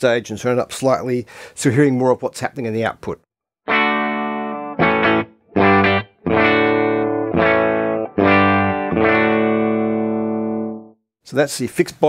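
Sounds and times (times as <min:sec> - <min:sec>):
electric guitar chords: 0:03.7 - 0:11.0.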